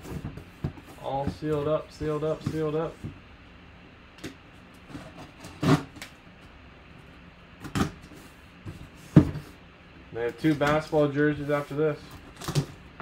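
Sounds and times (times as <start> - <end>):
knife slicing stickers on cardboard: 4.9 - 6.0.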